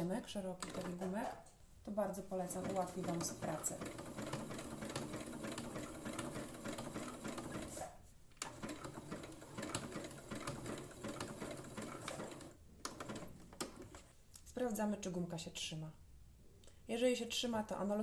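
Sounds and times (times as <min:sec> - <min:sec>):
electric sewing machine stitching: 0:02.5 - 0:07.8, 0:08.4 - 0:13.3.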